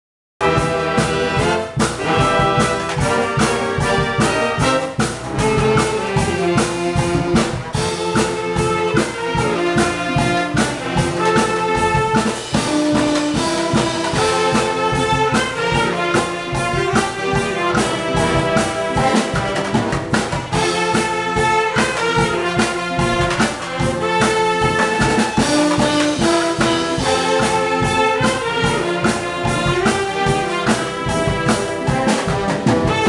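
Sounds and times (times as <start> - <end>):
wind band playing: 0.4 - 33.0.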